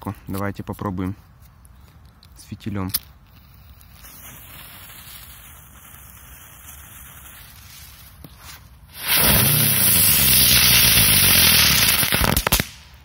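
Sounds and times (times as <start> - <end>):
fuse burning: 1.2 - 12.8
firework hissing sparks: 3.3 - 12.7.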